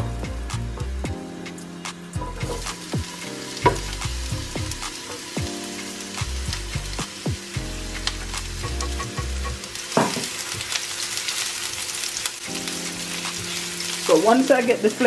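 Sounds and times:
vegetables sizzling in hot oil: 0.0 - 15.0
spatula scraping a pan: 2.2 - 2.8.

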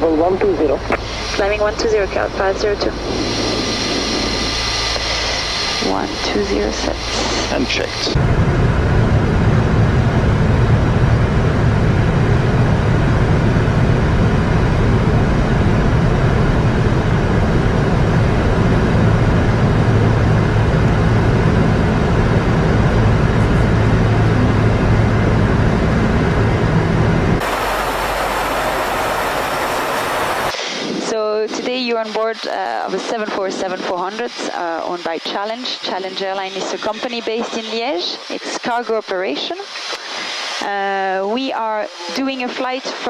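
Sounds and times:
jet engine drone in cabin: 0.0 - 43.0
airflow rush: 0.5 - 31.2.

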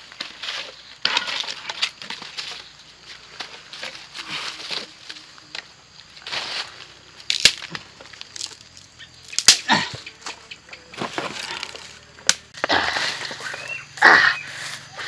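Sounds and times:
leaf litter rustling: 0.0 - 9.8, 10.9 - 12.0
sticks cracking: 7.2 - 13.7.

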